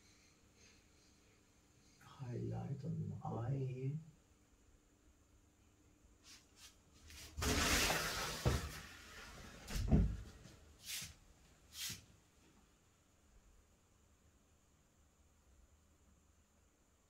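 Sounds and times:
rustling: 0:06.2 - 0:12.0.

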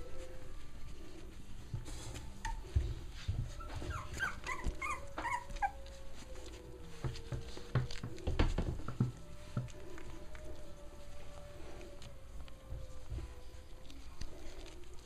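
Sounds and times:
puppies yipping and squeaking: 0:02.2 - 0:02.9, 0:03.5 - 0:06.6.

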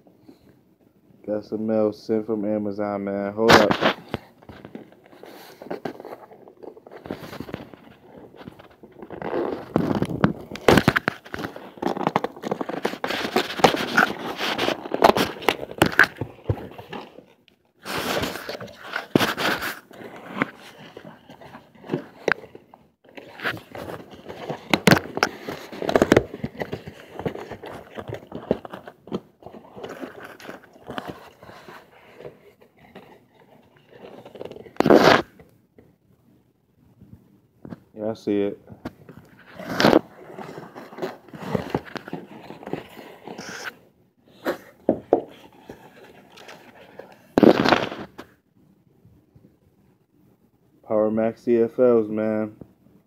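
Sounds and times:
cardboard and plastic crinkling: 0:03.4 - 0:35.4, 0:38.8 - 0:48.3
cardboard flaps scraping: 0:03.5 - 0:35.4, 0:38.8 - 0:48.3
packing tape tearing: 0:03.5 - 0:35.4, 0:39.2 - 0:43.8, 0:45.3 - 0:48.3.

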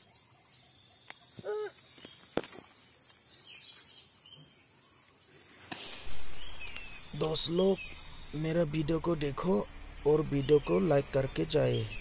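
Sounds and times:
crickets and insects droning: 0:00.0 - 0:12.0
faint bird chirps: 0:00.0 - 0:12.0.

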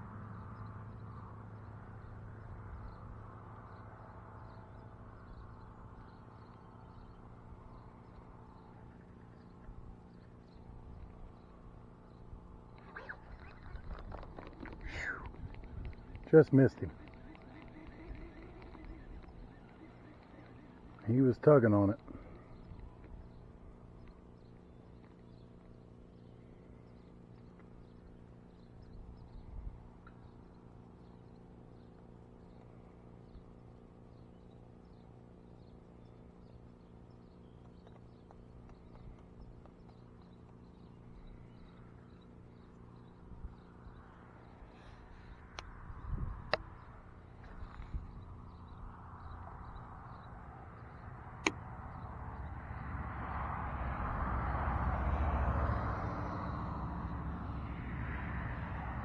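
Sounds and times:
steady low hum: 0:00.0 - 0:53.3
distant birds chirping: 0:00.0 - 0:58.2
wind buffeting microphone: 0:12.1 - 0:21.0, 0:45.6 - 0:48.4.

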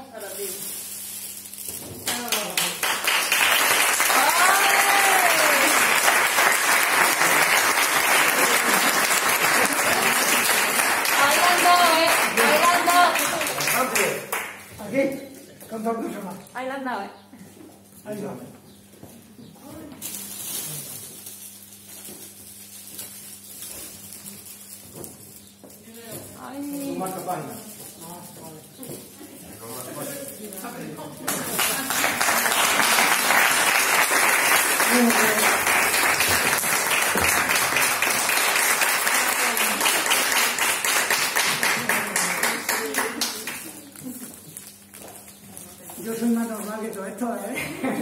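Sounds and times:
audience applause: 0:02.1 - 0:14.6, 0:31.3 - 0:43.8.

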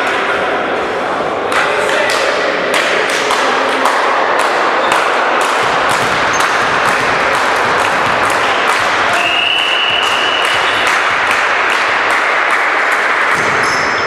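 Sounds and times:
sports hall noise: 0:00.0 - 0:14.0
ball taps and thuds: 0:04.9 - 0:09.0.

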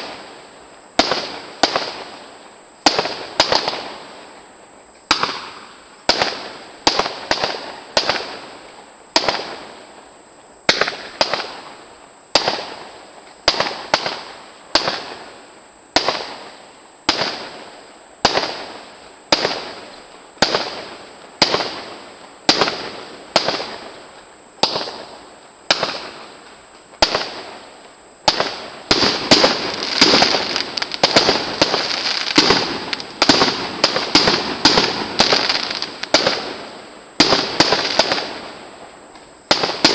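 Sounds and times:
firework shells bursting: 0:28.2 - 0:38.6.

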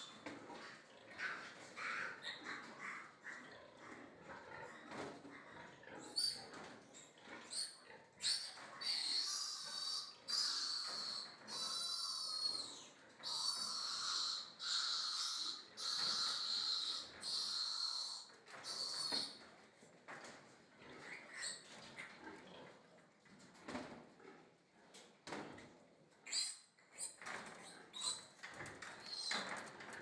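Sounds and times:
piglet squealing: 0:07.6 - 0:19.3.

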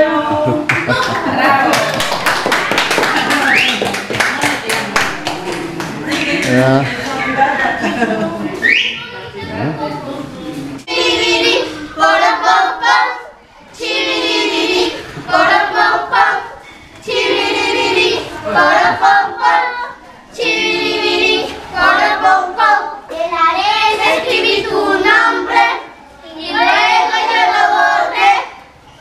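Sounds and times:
children singing unaccompanied: 0:10.8 - 0:29.0.

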